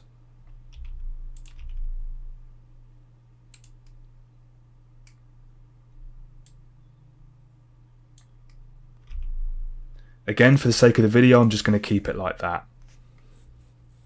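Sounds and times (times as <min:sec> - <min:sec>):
computer mouse clicks: 0:00.0 - 0:01.9, 0:03.5 - 0:04.1, 0:08.1 - 0:09.3
low electrical hum: 0:00.0 - 0:14.0.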